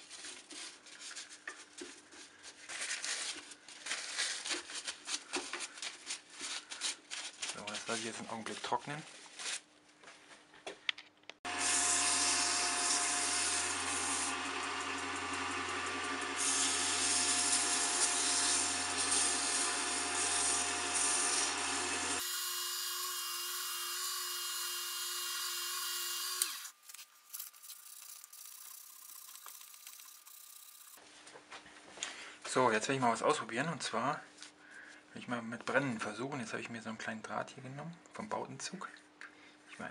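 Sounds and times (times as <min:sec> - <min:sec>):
wood lathe motor hum: 0:11.5 - 0:26.8
sandpaper sanding spinning wood: 0:11.5 - 0:31.0.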